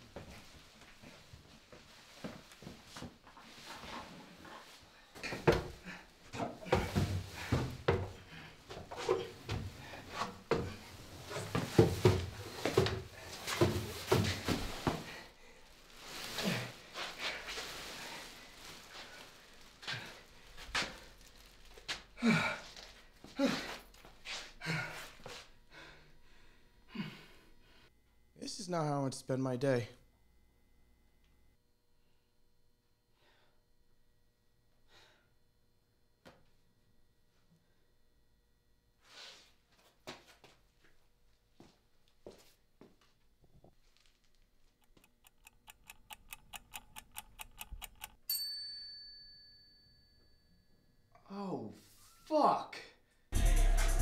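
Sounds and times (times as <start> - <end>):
man breathing hard: 22.2 - 27.9
timer ticking: 44.8 - 48.4
bright bell ding: 48.3 - 50.7.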